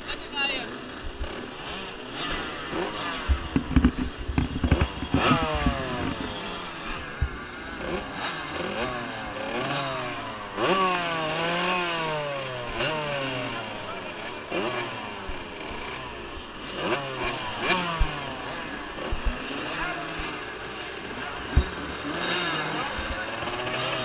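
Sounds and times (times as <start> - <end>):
motocross bikes revving: 0.0 - 24.0
low thumps: 3.3 - 6.4.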